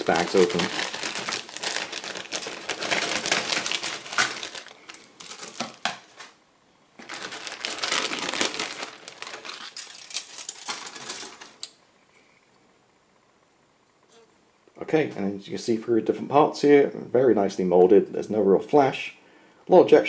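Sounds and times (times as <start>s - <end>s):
plastic bag crinkling: 0.0s - 6.4s, 7.0s - 11.7s.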